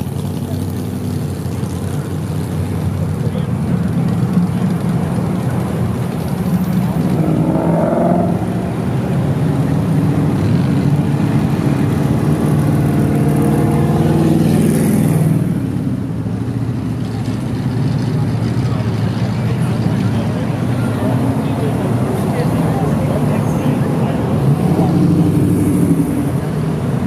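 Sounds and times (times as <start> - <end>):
cars driving past: 0.0 - 27.0
engine revving: 7.0 - 8.6.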